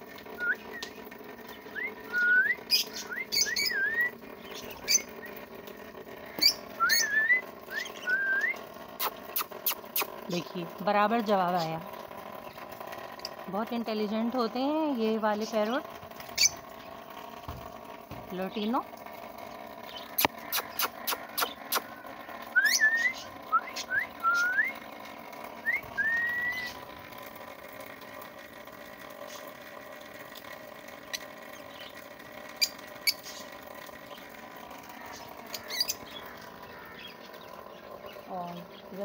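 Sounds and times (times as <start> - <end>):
parrot whistling and chirping: 0.4 - 1.0, 1.7 - 4.2, 6.4 - 10.1, 20.2 - 21.9, 22.5 - 24.8, 25.6 - 26.8.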